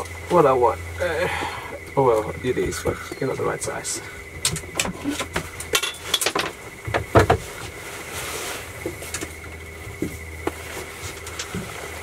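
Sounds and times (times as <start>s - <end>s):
steady low hum: 0.0s - 12.0s
knocks and clatters on a boat: 3.9s - 7.8s, 8.8s - 12.0s.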